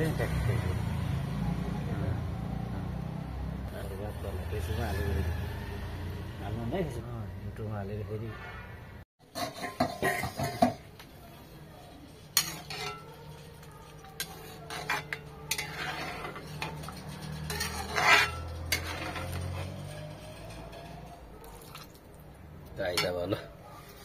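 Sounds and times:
metal ladle scraping iron wok: 8.3 - 10.8, 12.2 - 21.9, 22.9 - 24.0.

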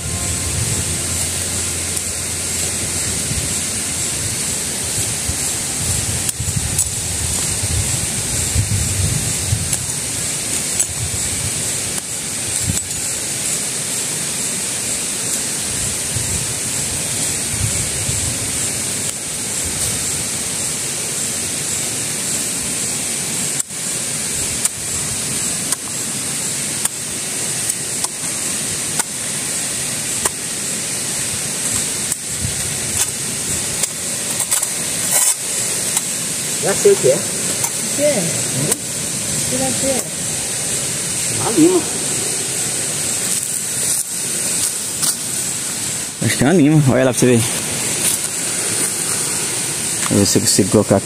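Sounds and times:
steady rushing hiss: 0.0 - 51.0
small shovel digging soil: 31.6 - 38.0, 42.6 - 45.8.

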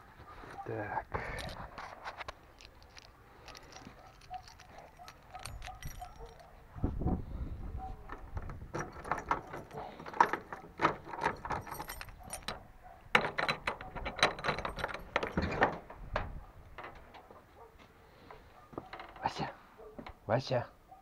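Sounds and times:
small metal clicks: 1.2 - 6.6, 8.1 - 17.3
keys jangling against padlock: 1.2 - 6.7, 7.8 - 15.9.

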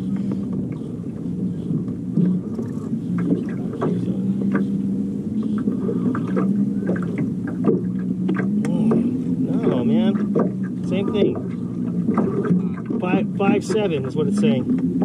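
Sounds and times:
boat engine running: 0.0 - 15.0
light knocks and clicks: 5.5 - 13.0.

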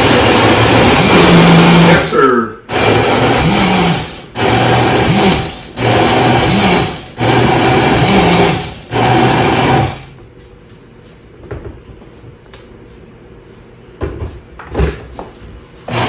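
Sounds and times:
blender pulsing: 0.0 - 10.1.

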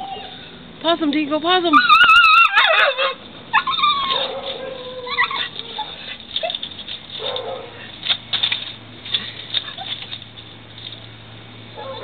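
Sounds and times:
dog whimpering: 0.0 - 0.4, 1.7 - 6.6.

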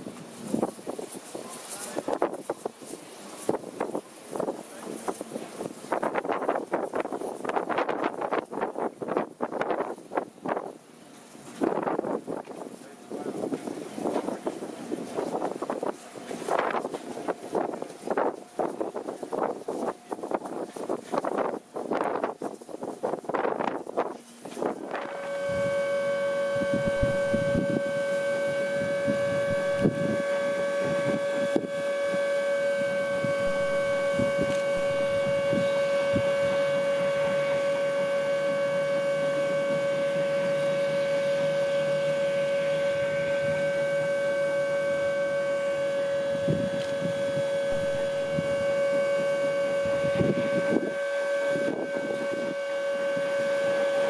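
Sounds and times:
steam snowplough whistle-like tone: 0.0 - 10.7, 11.5 - 54.0
low rumbling: 23.3 - 54.0.

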